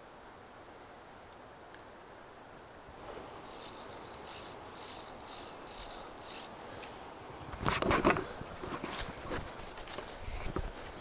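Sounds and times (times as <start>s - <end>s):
crackling rustle: 3.0s - 11.0s.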